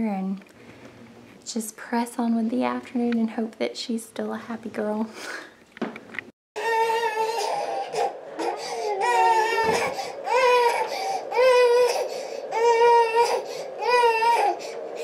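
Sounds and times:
toddler crying: 6.6 - 14.6.

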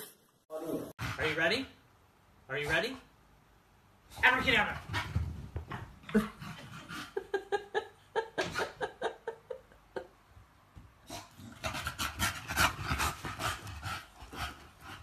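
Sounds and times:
dog panting: 11.1 - 15.0.

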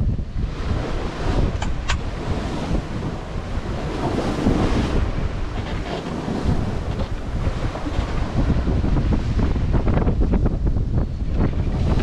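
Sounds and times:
water rushing along hull: 0.0 - 12.0
wind buffeting microphone: 0.0 - 12.0.

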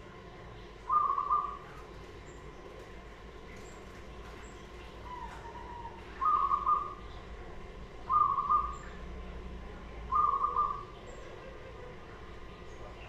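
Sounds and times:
dove cooing: 0.9 - 1.7, 5.1 - 7.1, 8.1 - 8.8, 10.1 - 11.8.

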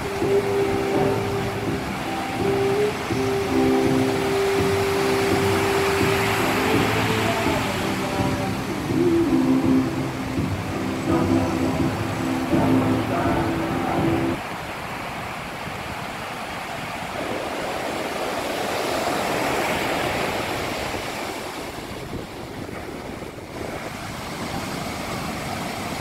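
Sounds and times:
ocean surf breaking: 0.0 - 26.0.

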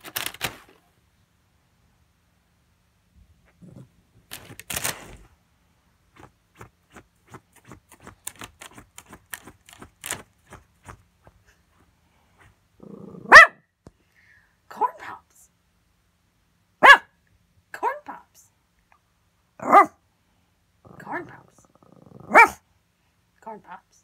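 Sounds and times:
dog barking: 13.2 - 13.7, 16.8 - 17.2, 19.6 - 20.0, 22.3 - 22.6.

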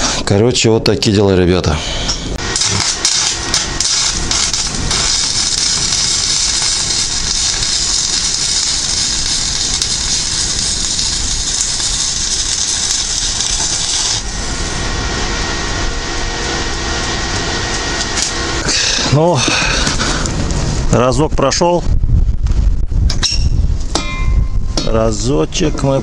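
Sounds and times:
low hum: 2.0 - 26.0
welding arc crackling: 2.3 - 21.2.

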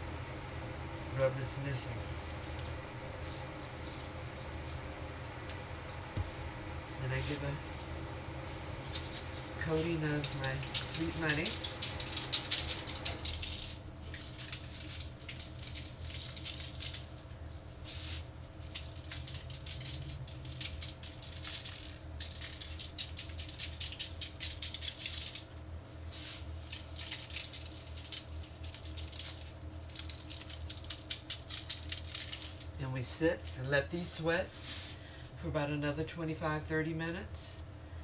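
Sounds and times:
shaker bottle rattling: 8.8 - 17.2, 18.6 - 25.4, 26.6 - 32.8.

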